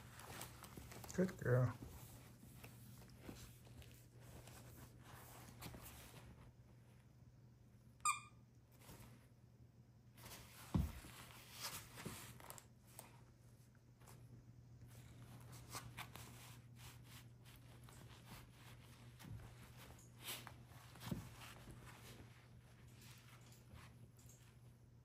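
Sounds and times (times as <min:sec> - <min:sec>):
plush toy fabric rustling: 0:00.0 - 0:06.8, 0:14.9 - 0:23.2.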